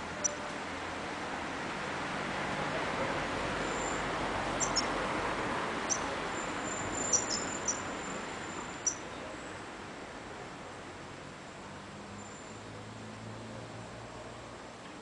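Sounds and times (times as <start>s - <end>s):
bird chirping: 0.2s - 0.4s, 4.6s - 4.9s, 5.9s - 9.0s.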